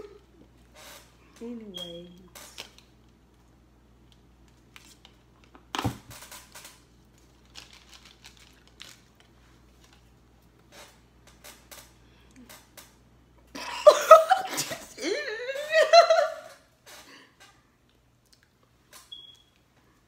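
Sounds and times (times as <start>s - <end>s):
jelly beans rattling in plastic box: 6.3s - 10.1s.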